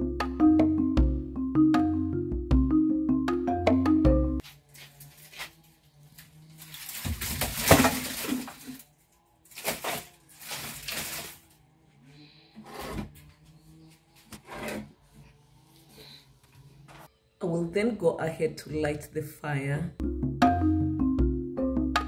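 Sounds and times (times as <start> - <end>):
dry grass rustling: 4.4 - 8.9, 9.5 - 11.5.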